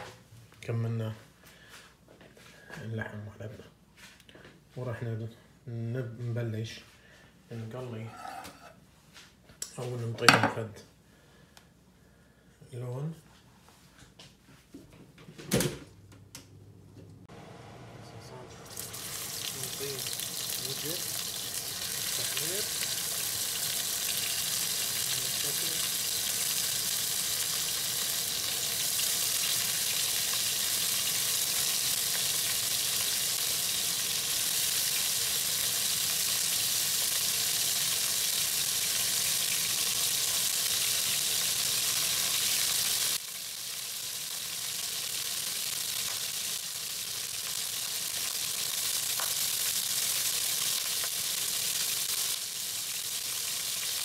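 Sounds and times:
meat sizzling in a hot pan: 18.7 - 54.0.

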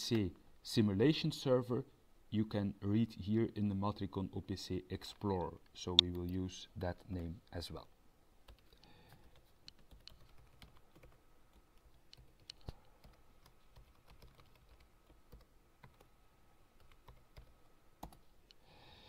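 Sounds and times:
typing on a computer keyboard: 8.5 - 16.1, 16.8 - 18.2.

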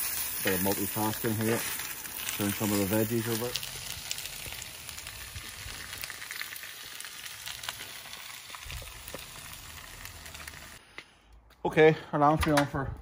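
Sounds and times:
vegetables sizzling in a pan: 0.0 - 10.8
light crackles: 0.0 - 11.5.

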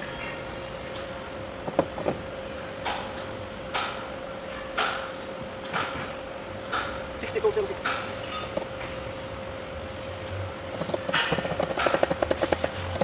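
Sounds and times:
steady hum: 0.0 - 13.0
sharp metal knocks: 10.7 - 13.0.

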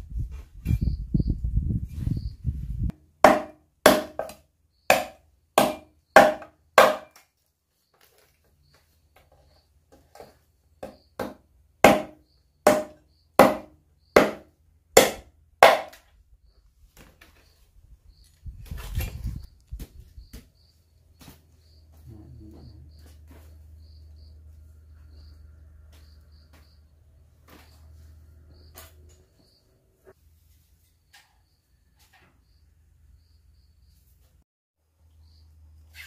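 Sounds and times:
blade chopping bamboo: 3.2 - 7.3, 10.8 - 16.0.

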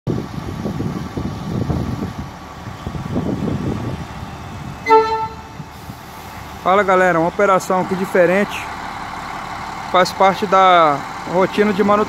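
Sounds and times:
diesel train rumbling: 0.1 - 12.0
train horn toot: 4.8 - 5.6.

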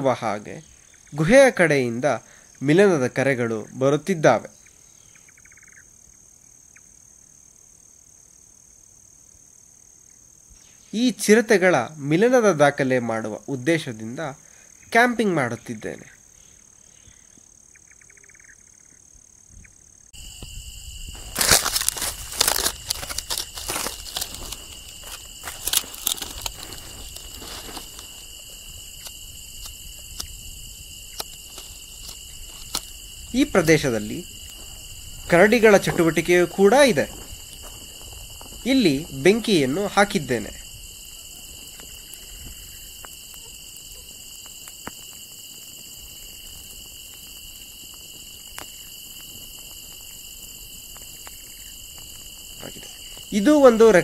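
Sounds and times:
crickets chirring: 0.0 - 54.0
dry grass and twigs rustling: 20.2 - 54.0
campfire crackling and popping: 21.1 - 53.8.

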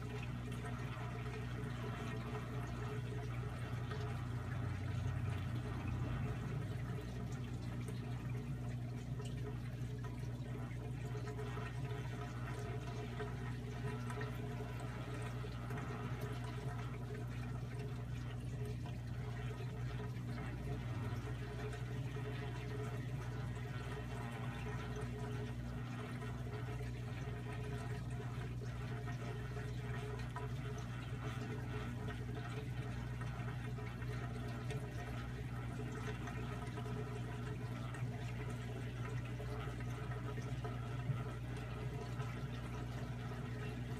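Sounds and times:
low hum: 0.0 - 32.2
aquarium filter water flow: 0.0 - 43.9.

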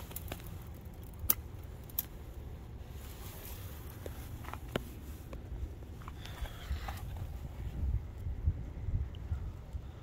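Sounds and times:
camera handling rumble: 3.8 - 7.6.

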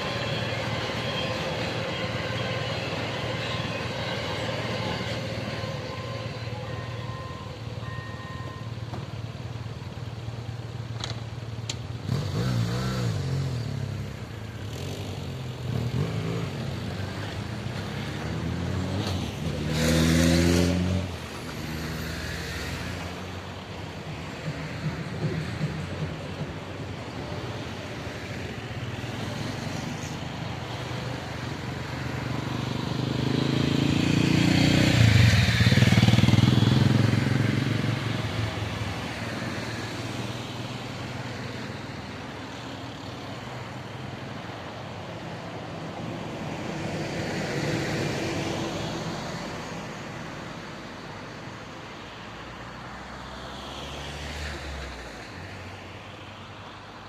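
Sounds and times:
vehicles passing by: 0.0 - 57.0.

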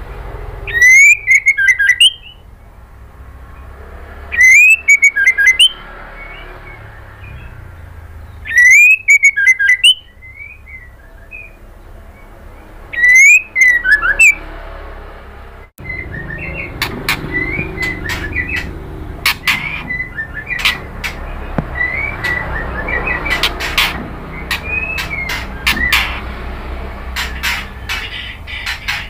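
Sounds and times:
bird singing whistled phrases: 0.7 - 2.4, 4.3 - 6.4, 8.3 - 11.6, 12.9 - 14.4, 15.8 - 18.7, 19.5 - 20.8, 21.8 - 23.6.

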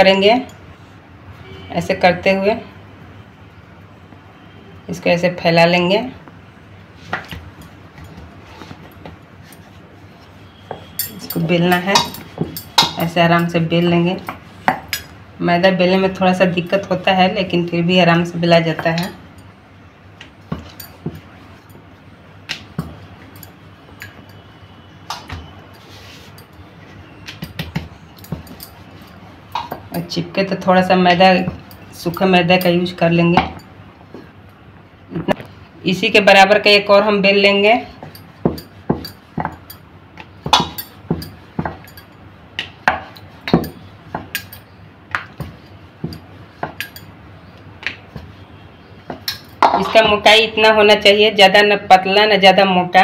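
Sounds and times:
rolling pin rolling dough: 20.2 - 21.7, 37.2 - 47.0, 47.8 - 50.3
hand rubbing dough: 25.2 - 32.8, 47.8 - 49.3
rolling pin knocking on wooden board: 38.4 - 39.6, 40.4 - 41.9.

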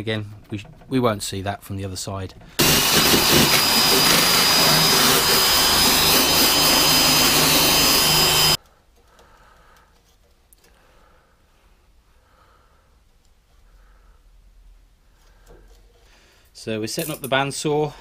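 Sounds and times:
drill with wire brush grinding metal: 2.6 - 8.6.

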